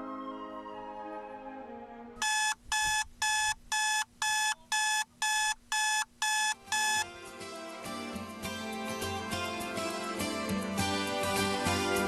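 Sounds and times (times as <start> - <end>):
alarm clock beeping: 2.2 - 7.0.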